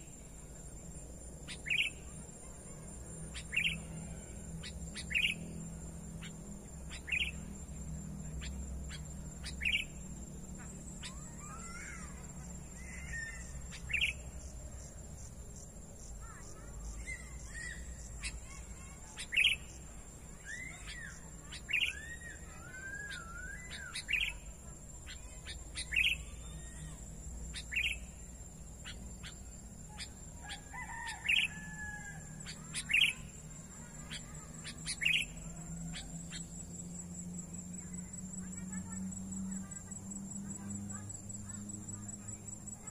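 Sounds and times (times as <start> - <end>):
bird warbling: 10.6 - 14.2, 20.3 - 24.5, 28.8 - 36.8.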